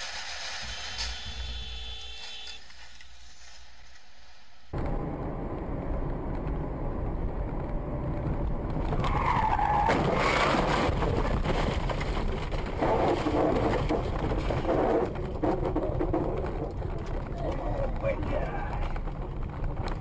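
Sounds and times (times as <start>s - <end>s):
car road and engine noise: 0.0s - 20.0s
tyre squeal: 9.0s - 10.9s.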